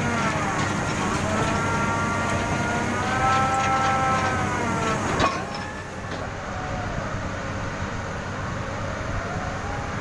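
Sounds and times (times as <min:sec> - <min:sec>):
drilling rig drone with whine: 0:00.0 - 0:10.0
quieter machinery drone: 0:00.0 - 0:10.0.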